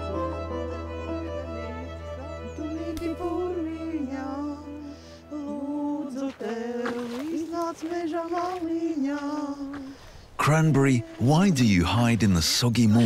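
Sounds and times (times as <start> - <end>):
two women singing a folk song: 2.4 - 11.6.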